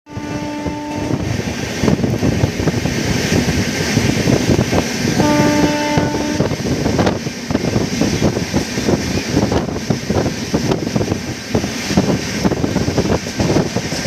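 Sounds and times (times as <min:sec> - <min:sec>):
locomotive horn blasts: 0:00.1 - 0:01.3, 0:05.2 - 0:06.6
train wheels clattering on track: 0:00.1 - 0:14.0.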